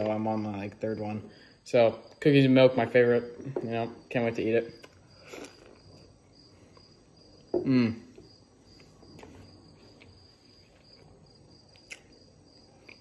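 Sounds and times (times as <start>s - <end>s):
crickets chirping: 0.0s - 13.0s
man humming while chewing: 7.6s - 8.3s.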